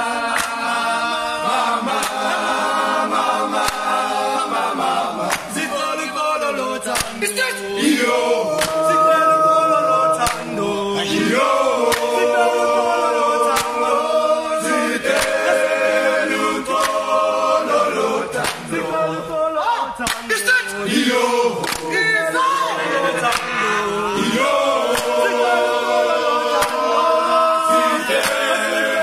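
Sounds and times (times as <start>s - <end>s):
men singing a cappella: 0.0s - 29.0s
hand claps: 0.2s - 0.9s, 1.9s - 2.4s, 3.4s - 4.1s, 5.2s - 5.7s, 6.9s - 7.4s, 8.5s - 9.1s, 10.2s - 10.6s, 11.8s - 12.3s, 13.5s - 13.9s, 15.0s - 15.6s, 16.7s - 17.2s, 18.3s - 18.7s, 20.0s - 20.8s, 21.5s - 22.0s, 23.2s - 23.6s, 24.8s - 25.3s, 26.4s - 27.0s, 28.1s - 28.6s.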